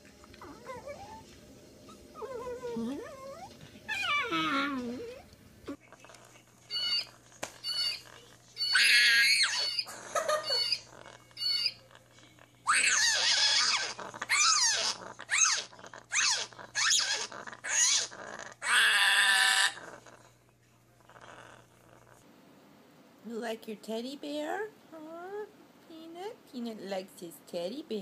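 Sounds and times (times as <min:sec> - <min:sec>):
parrot chirps: 0:06.7 - 0:08.0, 0:08.6 - 0:09.9, 0:10.5 - 0:11.8
parrot squawking: 0:06.7 - 0:08.0, 0:08.6 - 0:11.8, 0:12.7 - 0:19.8.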